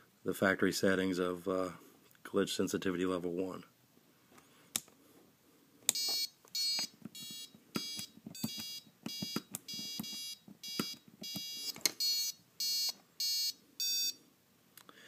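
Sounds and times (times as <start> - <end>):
short electronic beeps: 6.0 - 14.2.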